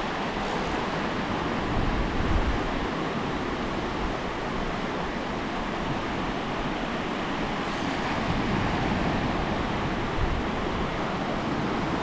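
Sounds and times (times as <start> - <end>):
sea surf on beach: 0.0 - 12.0
wind on microphone: 1.6 - 2.8, 7.6 - 12.0.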